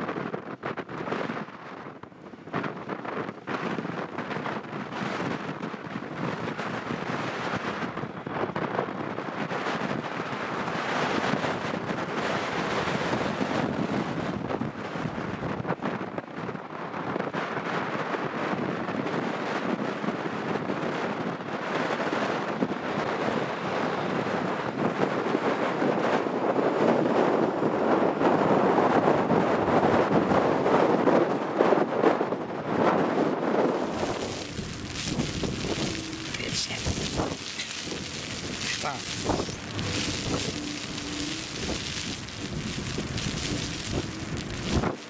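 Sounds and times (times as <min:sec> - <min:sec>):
wind buffeting microphone: 0:00.0 - 0:45.0
jet engines roaring: 0:33.8 - 0:45.0.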